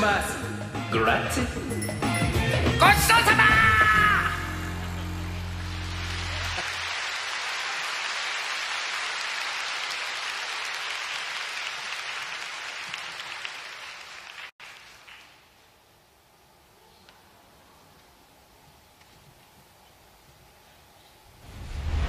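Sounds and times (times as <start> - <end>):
audience applauding: 4.7 - 15.4.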